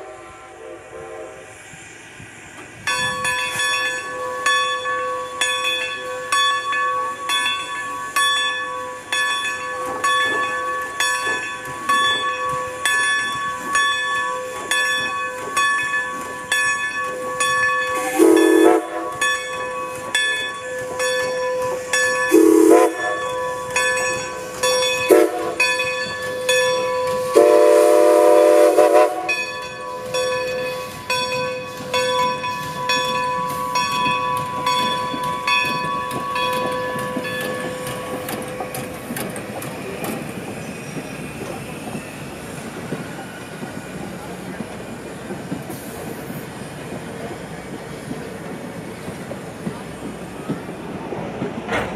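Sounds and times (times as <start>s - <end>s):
steam locomotive chugging: 0.0s - 51.9s
locomotive chime whistle: 2.8s - 38.9s.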